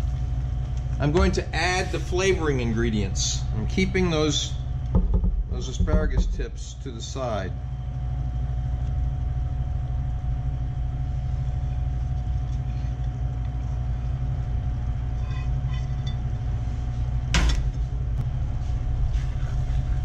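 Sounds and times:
faint hum: 0:00.0 - 0:20.0
low background rumble: 0:00.0 - 0:20.0.

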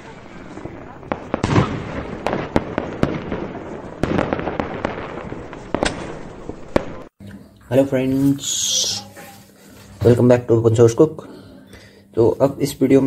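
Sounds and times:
fireworks pops and bangs: 0:00.0 - 0:07.1
fireworks crackle: 0:00.0 - 0:07.2.

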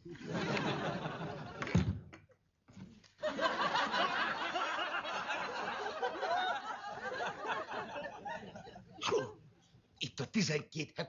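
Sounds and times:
audience laughter: 0:00.0 - 0:01.7, 0:03.2 - 0:09.0.

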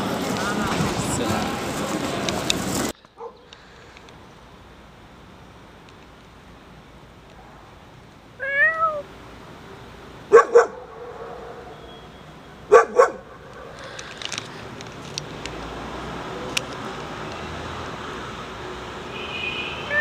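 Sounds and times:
cat meowing: 0:08.4 - 0:09.1.

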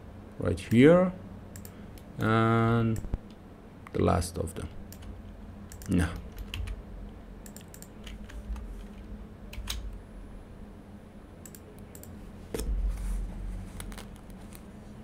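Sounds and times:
mouse and keyboard clicks: 0:07.4 - 0:09.0.

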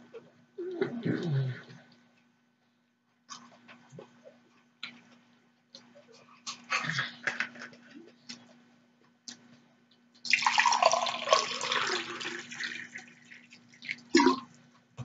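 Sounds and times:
water pouring into a glass: 0:10.3 - 0:14.5.

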